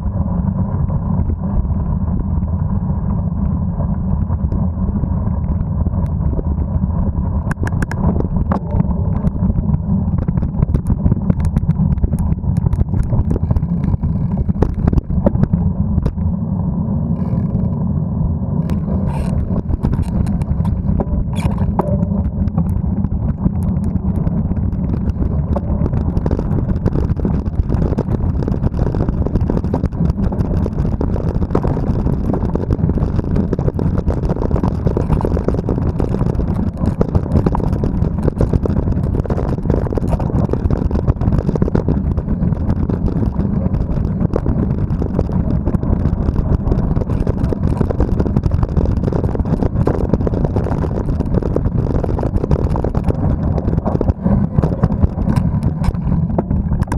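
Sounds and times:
wind buffeting microphone: 0.0 - 56.9
bike rattling and clicking: 7.4 - 16.3, 18.6 - 56.9.

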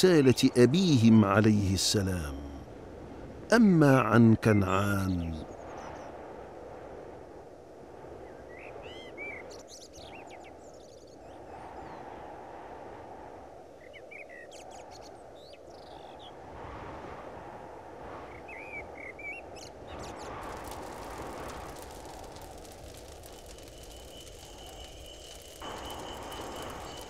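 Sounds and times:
low wind rushing: 0.4 - 4.5, 5.1 - 27.0
small birds chirping: 18.6 - 27.0
fast high ticking: 20.4 - 27.0.

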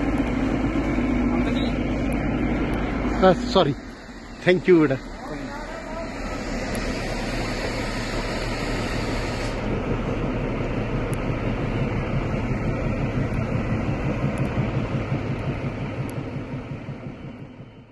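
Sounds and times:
diesel locomotive rumbling past: 0.0 - 17.9.

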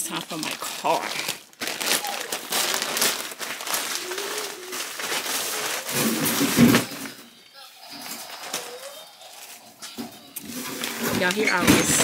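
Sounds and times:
plastic packaging crinkling: 0.0 - 7.2, 7.9 - 9.6.

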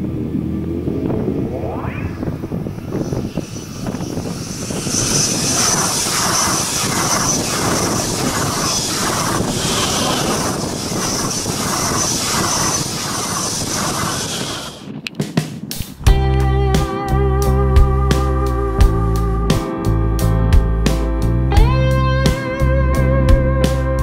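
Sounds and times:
high whine: 0.0 - 15.0.

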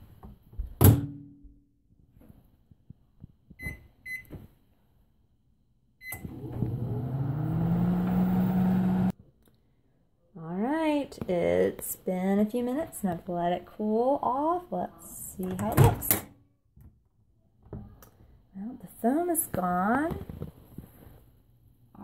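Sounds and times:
microwave oven humming: 6.0 - 9.1.

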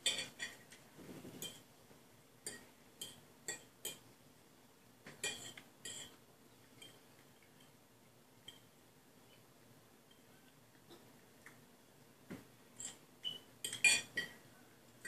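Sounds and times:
forks clinking on plates: 0.0 - 0.7, 5.2 - 6.2, 12.8 - 14.4.

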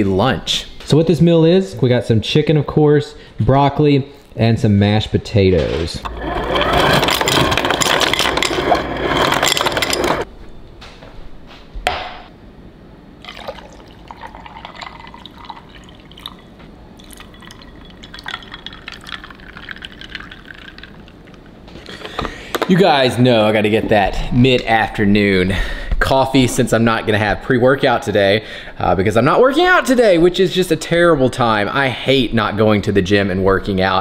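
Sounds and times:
liquid pouring into container: 13.2 - 21.5.

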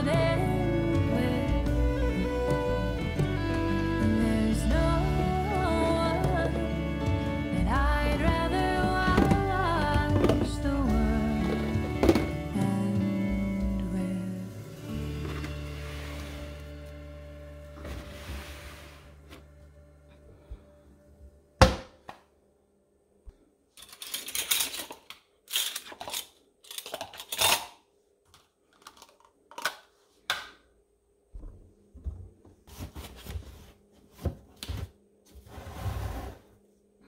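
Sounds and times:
kitchen items clattering and scraping: 8.2 - 12.5, 17.7 - 19.5, 23.8 - 27.8.

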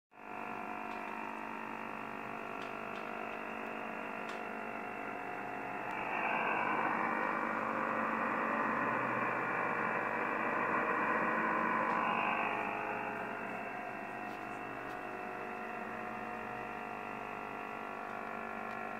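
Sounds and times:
radio interference tones: 0.3 - 18.9
rush of noise: 1.6 - 16.1
radio hiss: 1.6 - 16.3.

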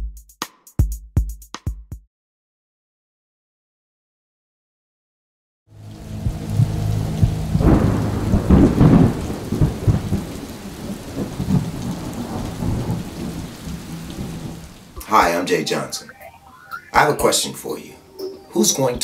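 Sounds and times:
steady rain: 5.7 - 19.0
rolling thunder: 5.8 - 15.0.

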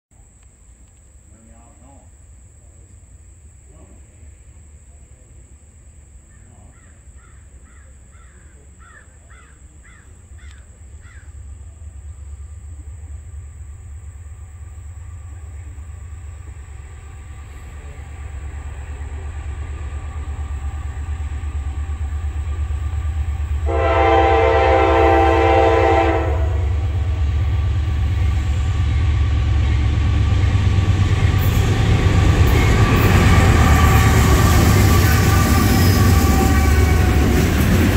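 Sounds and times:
diesel train rumble: 0.1 - 37.9
locomotive horn blast: 23.6 - 27.0, 32.5 - 37.7.

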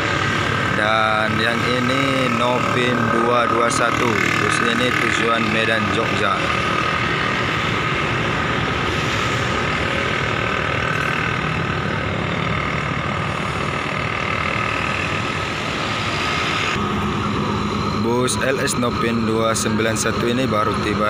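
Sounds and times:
diesel bus engine idling: 0.0 - 16.0, 16.8 - 21.0.

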